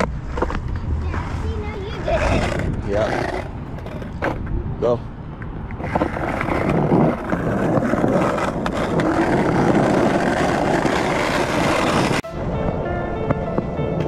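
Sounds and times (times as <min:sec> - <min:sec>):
board tyre rolling on pavement: 0:00.0 - 0:14.0.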